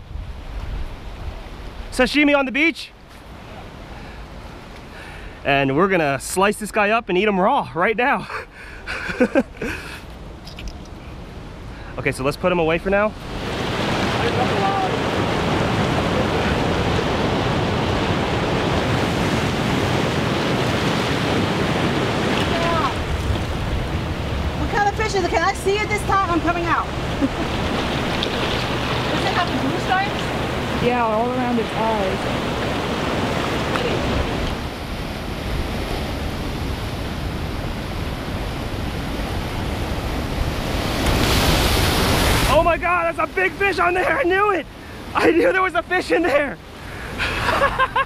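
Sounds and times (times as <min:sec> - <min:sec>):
wind rumbling on microphone: 0:00.0 - 0:02.0, 0:12.8 - 0:42.6
ocean surf breaking on rocks: 0:11.1 - 0:48.0.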